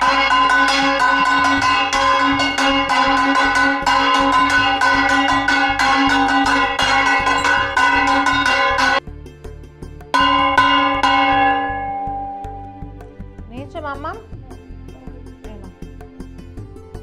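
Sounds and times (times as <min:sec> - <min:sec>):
hand bell ringing rapidly: 0:00.0 - 0:09.0.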